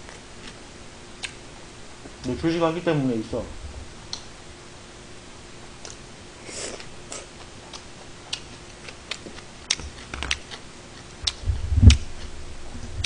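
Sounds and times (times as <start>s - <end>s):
loud low thump: 3.4s - 4.1s
eating sounds: 5.8s - 12.3s.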